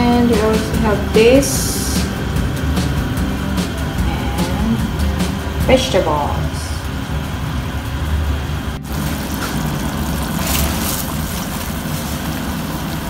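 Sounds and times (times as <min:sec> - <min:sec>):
water boiling in a pot: 0:00.0 - 0:13.0.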